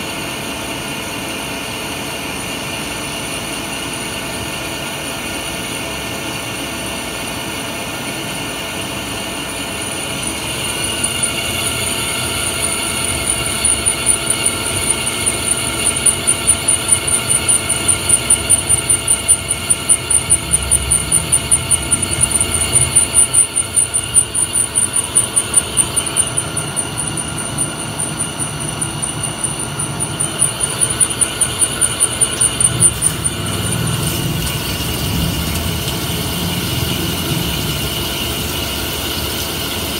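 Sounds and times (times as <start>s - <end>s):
high-pitched drilling whine: 8.6s - 39.9s
lathe running: 9.0s - 39.9s.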